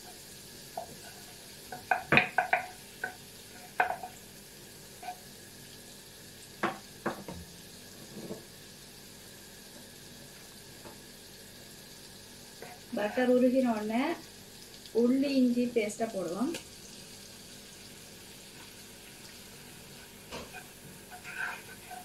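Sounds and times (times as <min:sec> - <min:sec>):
butter sizzling in a pot: 0:00.0 - 0:22.0
spatula tapping and scraping pan: 0:00.7 - 0:04.2, 0:20.3 - 0:22.0.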